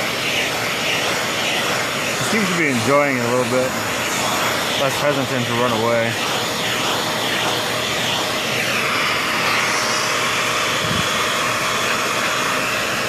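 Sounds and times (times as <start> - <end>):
vacuum cleaner airflow hiss: 0.0 - 13.0.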